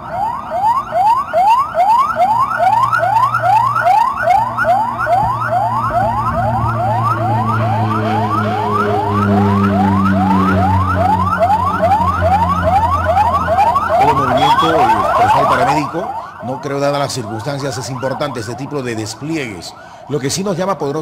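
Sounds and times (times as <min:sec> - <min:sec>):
ambulance siren yelping: 0:00.0 - 0:21.0
low drone: 0:02.7 - 0:16.4.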